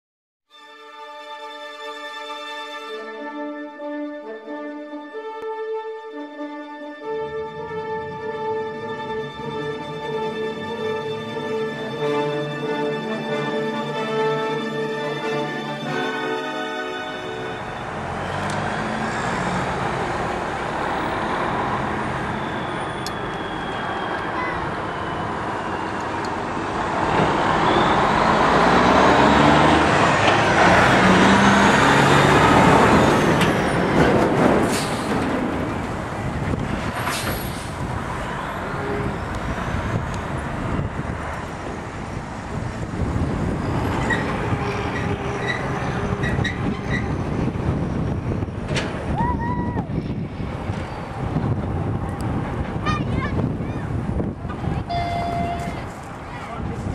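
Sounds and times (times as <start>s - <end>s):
road traffic: 0.7s - 56.9s
distant steam locomotive: 16.9s - 29.3s
vehicle passing close: 17.6s - 49.2s.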